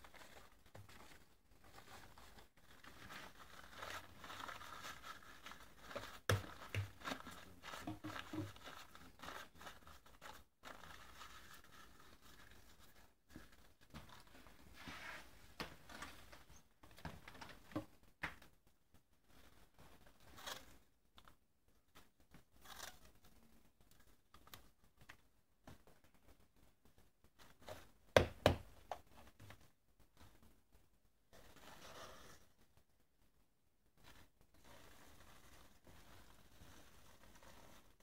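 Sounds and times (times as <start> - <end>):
tissue paper crinkling: 0.0 - 14.4.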